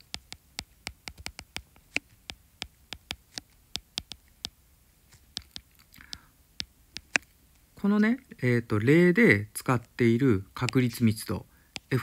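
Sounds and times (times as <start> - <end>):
stylus tapping on glass screen: 0.0 - 4.6, 5.3 - 7.3.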